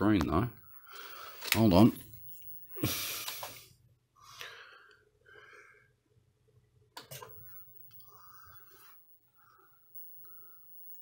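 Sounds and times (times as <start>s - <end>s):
faint breathing: 0.7s - 1.5s, 2.7s - 6.1s, 7.4s - 11.0s.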